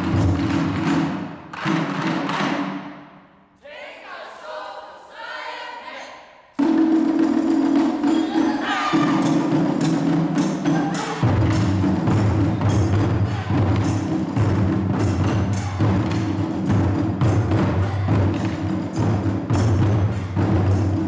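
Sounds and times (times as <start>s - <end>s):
taiko drums playing: 0.0s - 3.0s, 6.6s - 21.0s
people shouting: 3.6s - 6.4s, 8.2s - 9.3s, 13.1s - 13.8s.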